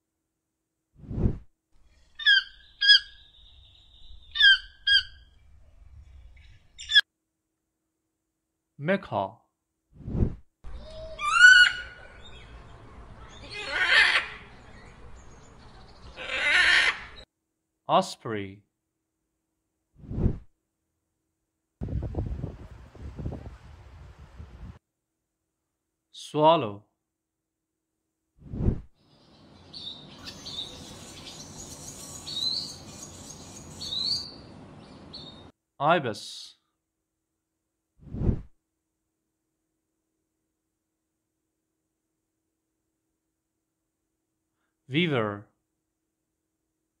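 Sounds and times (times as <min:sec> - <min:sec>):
macaw squawking: 0:02.2 - 0:03.3, 0:04.3 - 0:05.2, 0:10.8 - 0:12.4, 0:13.4 - 0:14.5, 0:16.1 - 0:17.2
swallow chirping: 0:29.4 - 0:35.4.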